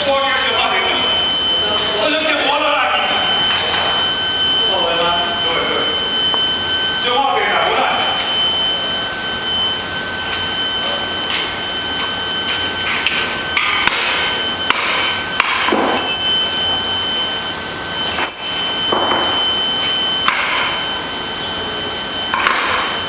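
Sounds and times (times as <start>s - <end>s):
steady high-pitched whine: 0.0s - 23.0s
metal tools clinking: 18.2s - 18.8s.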